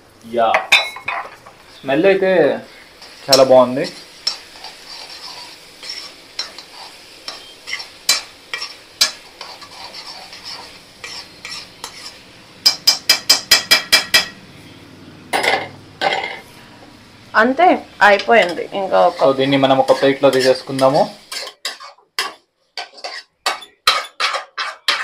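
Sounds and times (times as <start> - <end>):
tofu sizzling in a pan: 1.6 - 14.3, 17.0 - 25.0
metal spoon scraping a pan: 2.7 - 14.4, 18.1 - 25.0
spoon knocking against a pan: 12.6 - 14.4.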